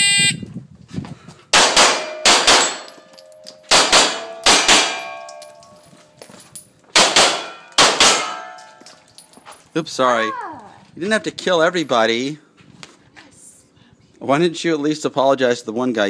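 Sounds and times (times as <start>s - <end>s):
pistol shots: 1.5s - 3.0s, 3.7s - 5.2s, 7.0s - 8.6s
metallic ringing: 2.0s - 9.6s.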